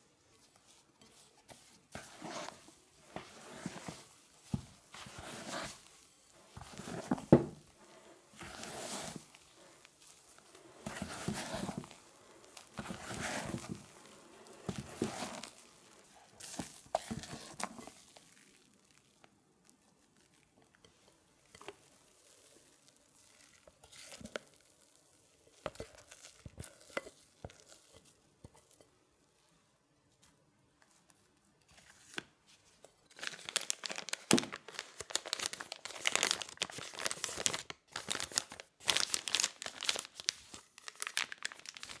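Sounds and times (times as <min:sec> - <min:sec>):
plastic piping bag crinkling: 0:00.2 - 0:28.8, 0:32.1 - 0:42.0.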